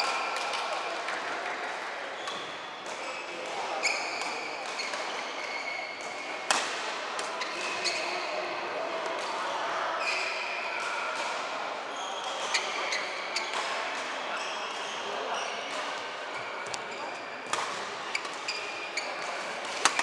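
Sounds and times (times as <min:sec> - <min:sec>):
shoes squeaking on court: 0:03.8 - 0:06.2, 0:14.3 - 0:20.0
racket hitting shuttlecock: 0:06.5 - 0:07.8, 0:17.5 - 0:18.4, 0:19.2 - 0:20.0.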